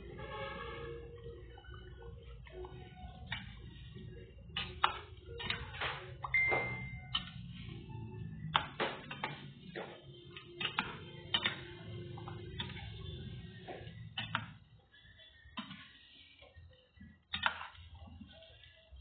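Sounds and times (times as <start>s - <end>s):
high steady beep: 6.2s - 7.2s.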